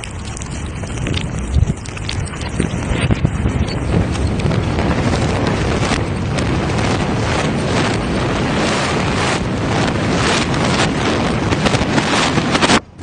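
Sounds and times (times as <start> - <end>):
sharp cracks: 0.0 - 12.8
rumble of collapsing building: 0.0 - 13.0.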